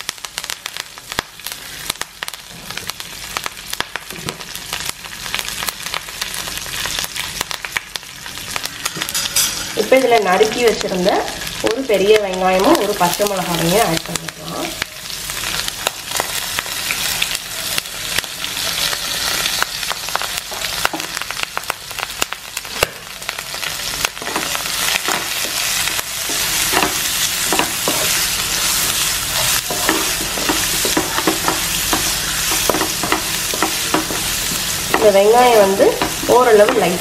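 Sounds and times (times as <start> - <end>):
onions sizzling in oil: 0.0 - 37.0
wooden spatula scraping pan: 26.2 - 37.0.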